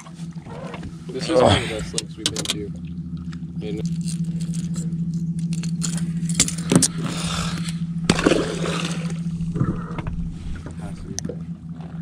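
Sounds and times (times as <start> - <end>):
boat motor humming: 0.0 - 12.0
scraping rustle: 6.9 - 10.8.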